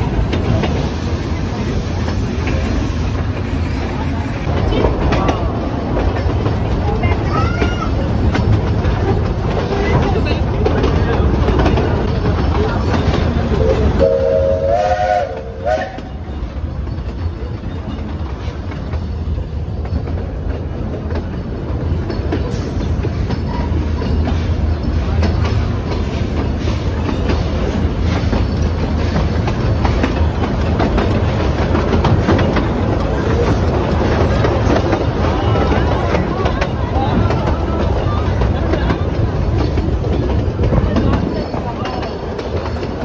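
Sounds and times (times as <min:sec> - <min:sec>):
wheels clattering over rails: 0:00.0 - 0:14.0, 0:15.9 - 0:43.0
train rumbling: 0:00.0 - 0:43.0
steam train whistle: 0:13.6 - 0:16.2.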